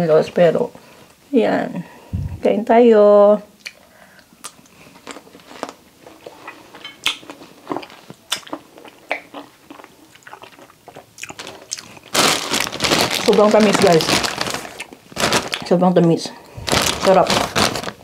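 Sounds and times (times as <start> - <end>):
person chewing cherries: 3.6 - 15.6.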